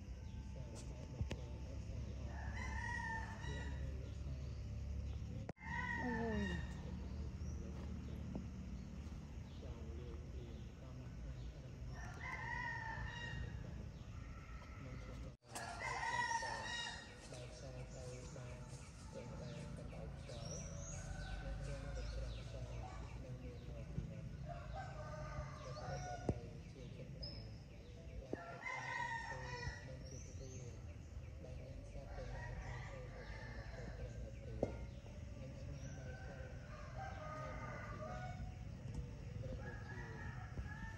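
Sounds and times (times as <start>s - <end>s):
rooster crowing: 2.3s - 3.9s, 5.6s - 6.9s, 11.9s - 17.2s, 24.4s - 26.3s, 28.4s - 30.0s, 32.1s - 34.2s, 36.0s - 38.6s, 39.6s - 40.9s
steady low hum: 6.5s - 12.2s.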